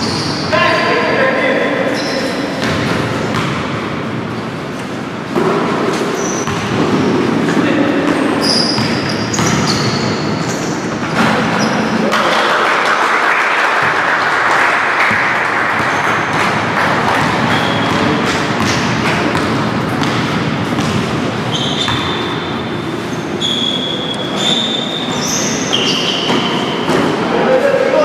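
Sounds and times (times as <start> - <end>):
sneaker squeaks: 0.0 - 0.9, 1.6 - 3.7, 4.3 - 12.0, 15.8 - 16.5, 17.1 - 27.4
basketball bouncing on court: 2.5 - 4.1, 5.3 - 12.4, 13.8 - 14.0, 15.0 - 22.8, 24.3 - 27.3.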